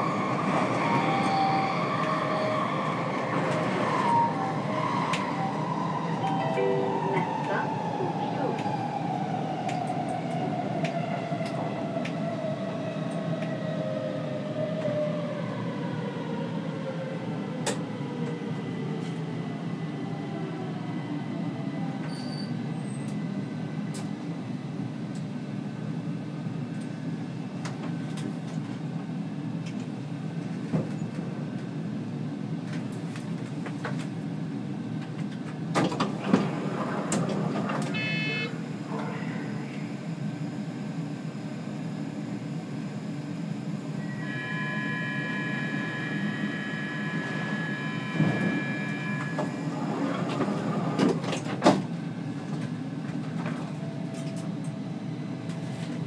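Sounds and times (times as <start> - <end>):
train wheels rumbling on rail: 0.0 - 25.6, 26.3 - 38.0, 47.0 - 56.0
electronic tone: 37.9 - 38.6, 44.0 - 49.8.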